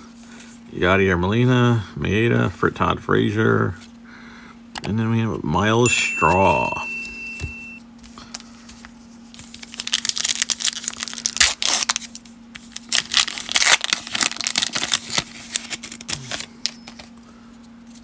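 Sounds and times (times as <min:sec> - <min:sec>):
foil wrapper tearing and crinkling: 0:09.4 - 0:16.7.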